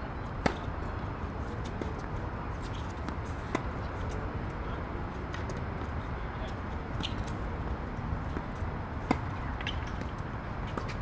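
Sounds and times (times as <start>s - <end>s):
outdoor background noise: 0.0s - 11.0s
tennis racket hitting ball: 0.4s - 0.7s, 9.0s - 10.1s.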